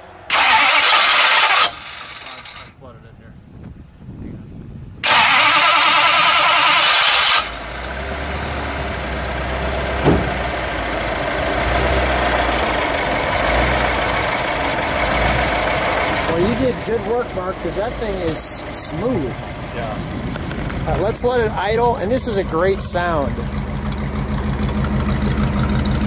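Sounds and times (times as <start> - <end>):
car engine idling: 0.0 - 26.0
starter motor cranking: 0.3 - 2.7, 5.0 - 7.8.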